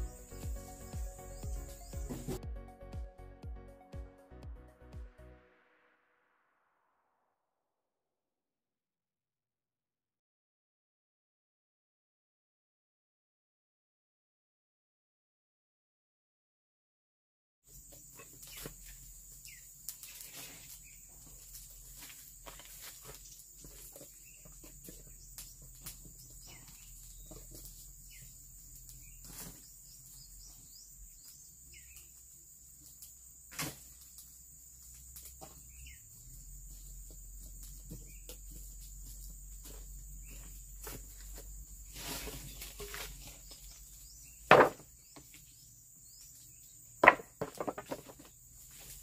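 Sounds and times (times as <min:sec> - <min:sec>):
high insect drone: 0:00.0 - 0:02.4, 0:17.9 - 0:44.4
timber pieces knocking together: 0:44.5 - 0:45.3, 0:47.0 - 0:48.3.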